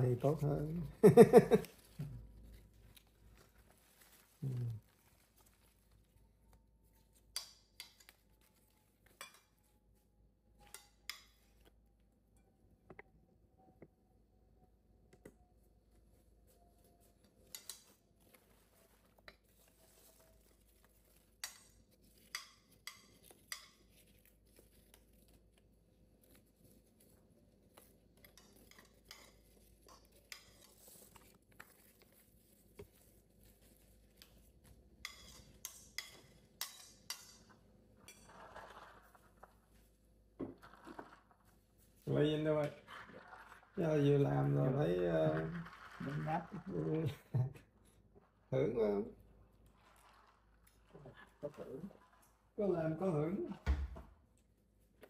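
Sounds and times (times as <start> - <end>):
soft rustling: 0.2 - 7.3, 15.8 - 22.4.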